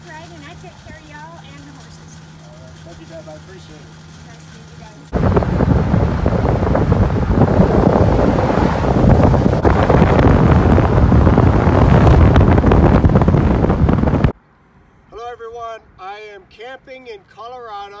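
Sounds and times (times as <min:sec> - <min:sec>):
strong wind buffeting microphone: 0:05.1 - 0:14.4.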